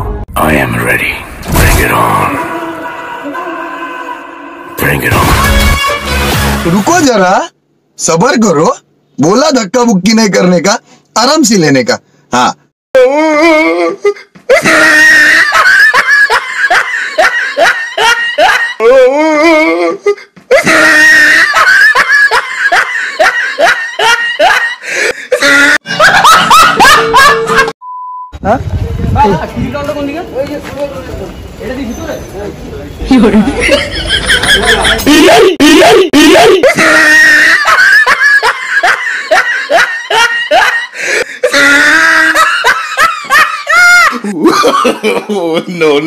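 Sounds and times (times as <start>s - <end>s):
person laughing loudly: 13.2s - 27.7s, 33.2s - 45.7s.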